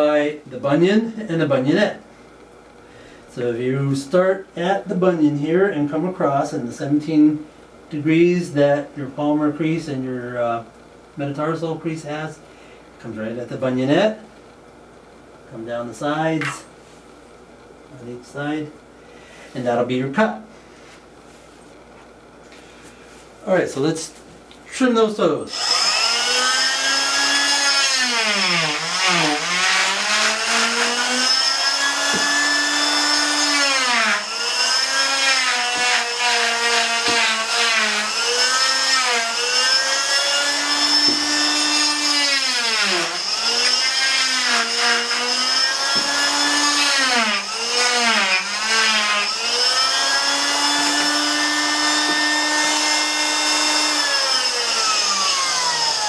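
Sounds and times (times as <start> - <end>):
oscillating cast saw whining: 25.5 - 56.0.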